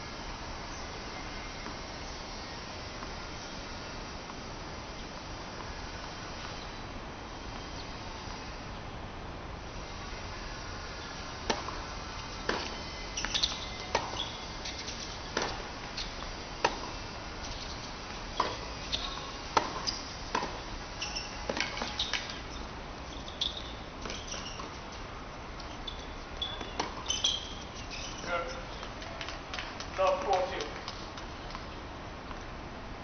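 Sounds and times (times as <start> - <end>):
tennis ball hits: 11.4 - 17.7, 18.3 - 22.3
shoe squeaks: 12.5 - 16.2, 17.4 - 20.1, 21.0 - 25.0, 25.6 - 28.7.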